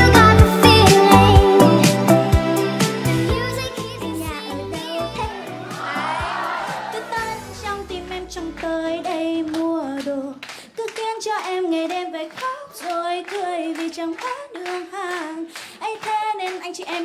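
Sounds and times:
backing music: 0:00.0 - 0:09.8
woman singing into microphone: 0:06.9 - 0:17.0
scattered handclaps: 0:08.6 - 0:17.0.

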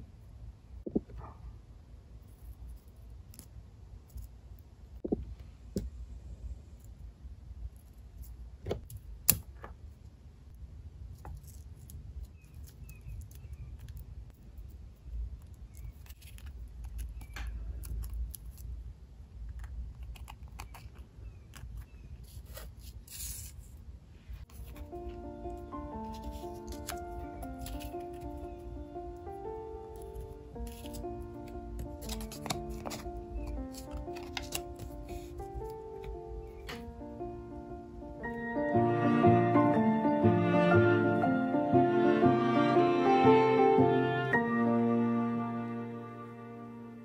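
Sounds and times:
paper rustling: 0:26.0 - 0:28.6, 0:30.0 - 0:36.8.

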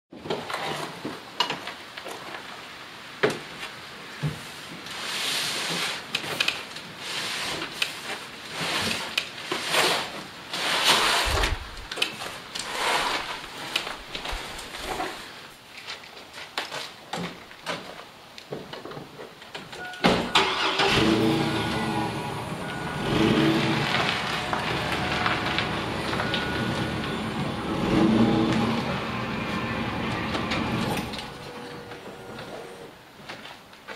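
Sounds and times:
cardboard box dragged and bumped: 0:07.0 - 0:15.4
footsteps on gravel: 0:23.2 - 0:28.8.

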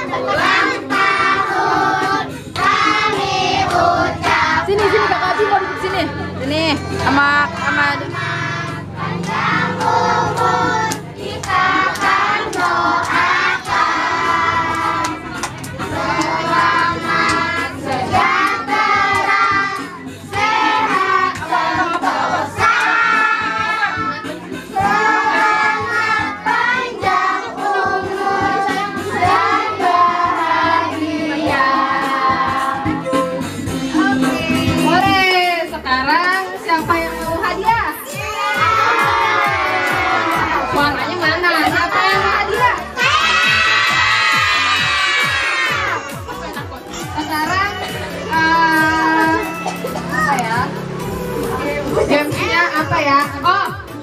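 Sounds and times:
group singing birthday song: 0:00.0 - 0:47.2
instrumental backing music: 0:00.0 - 0:54.0
hand claps: 0:09.2 - 0:13.8, 0:14.6 - 0:16.3.

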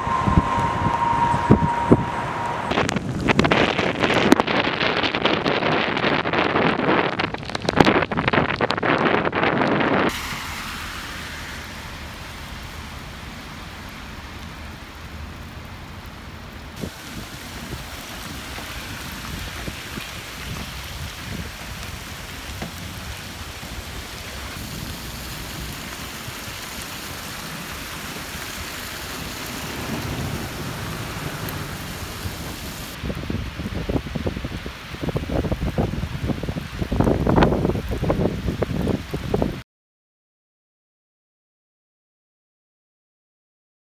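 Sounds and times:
heavy rain on pavement: 0:00.0 - 0:39.6
rain drop ticks: 0:09.6 - 0:33.2.

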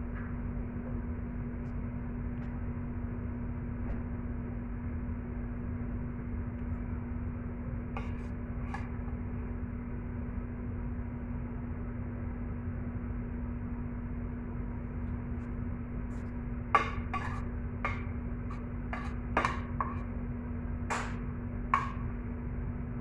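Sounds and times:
steady machine hum: 0:00.0 - 0:23.0
metal spoon scraping: 0:17.1 - 0:18.0.

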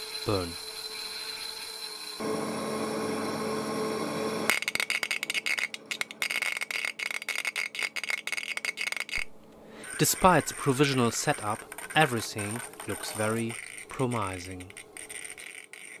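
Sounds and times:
steady high whine: 0:02.2 - 0:04.7.

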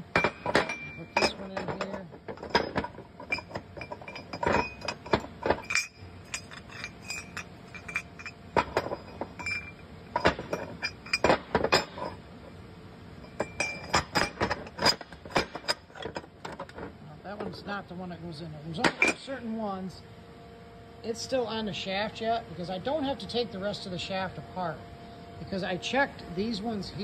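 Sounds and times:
metal parts clinking: 0:00.0 - 0:12.2, 0:13.2 - 0:17.6.

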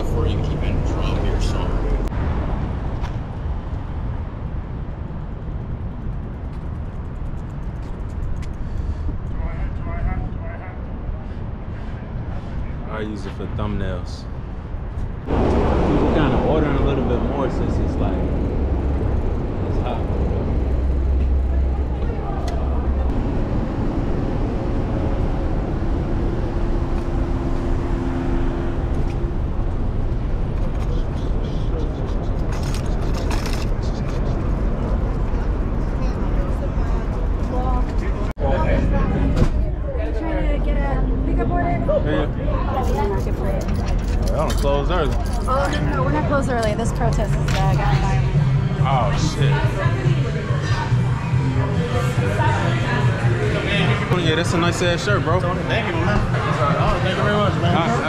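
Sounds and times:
city traffic rumble: 0:00.0 - 0:58.0
wind rumble on microphone: 0:14.3 - 0:42.6
low hum: 0:14.3 - 0:44.3.

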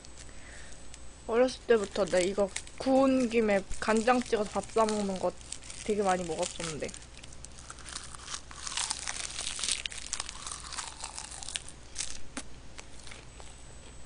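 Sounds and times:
crunchy seaweed being chewed: 0:01.7 - 0:13.6.

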